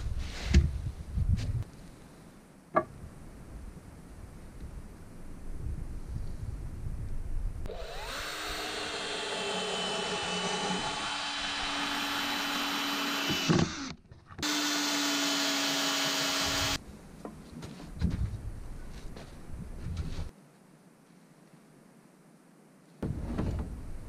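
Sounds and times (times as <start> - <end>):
cordless drill driving screws: 7.7 - 16.8.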